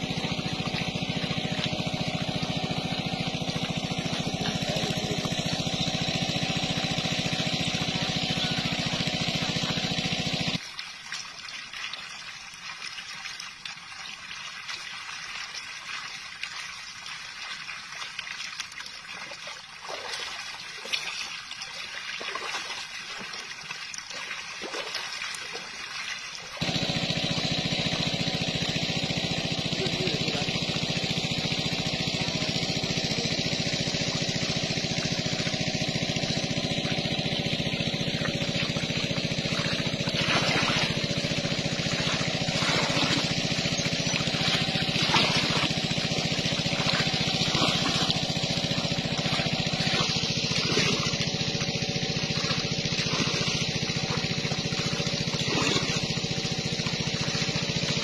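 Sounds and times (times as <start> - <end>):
small engine running: 0.0 - 10.6, 19.9 - 58.0.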